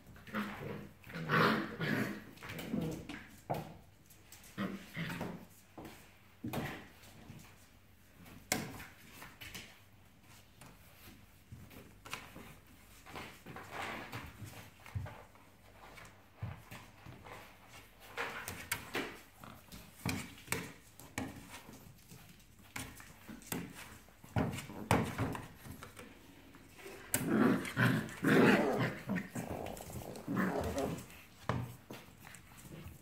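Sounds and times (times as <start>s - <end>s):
paws scuffling on hard floor: 0.0s - 33.0s
puppies growling: 26.6s - 31.3s.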